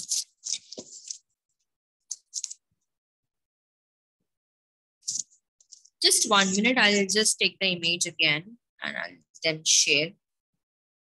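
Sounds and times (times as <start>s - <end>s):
rustling and handling noise: 0.0s - 1.4s, 2.1s - 2.7s, 5.1s - 6.7s.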